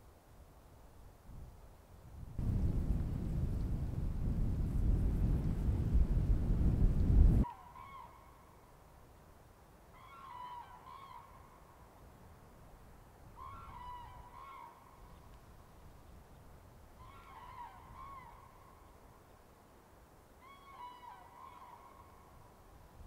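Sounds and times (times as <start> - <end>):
low wind rumble: 1.3 - 7.6.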